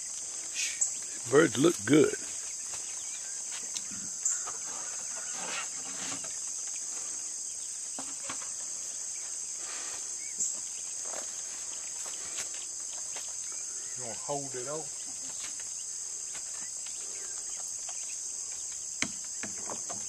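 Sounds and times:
high-pitched insect chorus: 0.0 - 20.0
faint knocks and rustles: 2.4 - 7.2, 7.9 - 13.4, 15.1 - 20.0.

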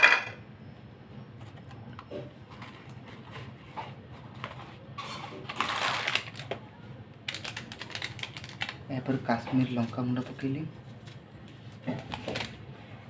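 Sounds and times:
plastic packet crinkling: 5.5 - 6.5, 7.2 - 9.9.

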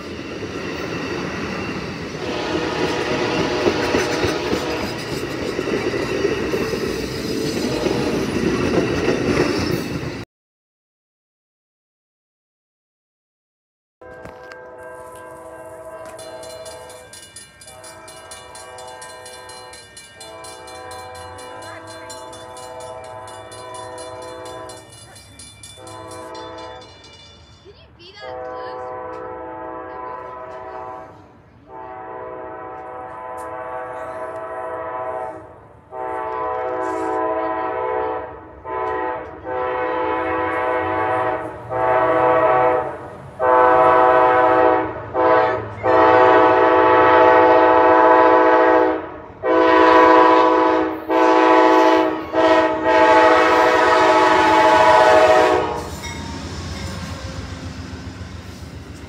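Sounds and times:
railroad crossing bell ringing: 0.0 - 10.2, 14.0 - 28.6, 49.9 - 59.0
train horn blasts: 2.2 - 5.0, 7.6 - 8.2, 14.0 - 17.0, 17.7 - 21.9, 22.5 - 24.8, 25.8 - 26.8, 28.1 - 56.1.

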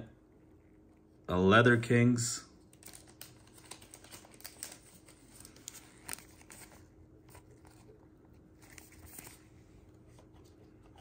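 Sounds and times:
plastic sleeve crinkling: 2.6 - 9.6.

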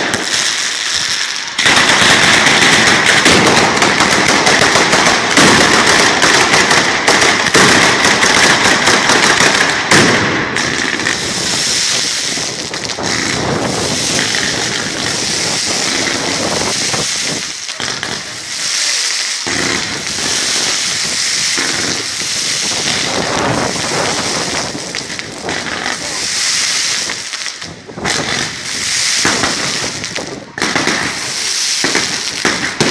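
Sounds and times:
firecrackers banging rapidly: 0.0 - 32.9
big firecracker bang: 1.6 - 18.6, 19.4 - 26.2.

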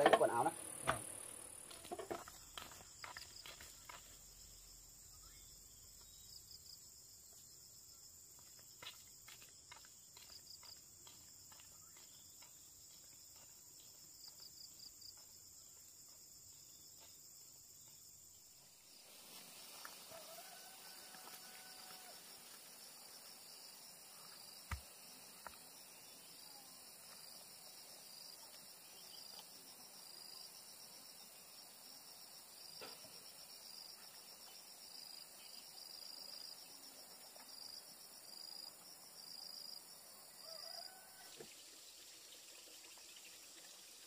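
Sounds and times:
insects chirring: 0.0 - 44.0.

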